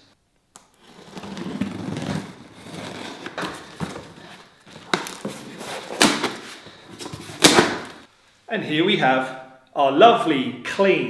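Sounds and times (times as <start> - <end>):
paper packing rustling: 0.8 - 8.1.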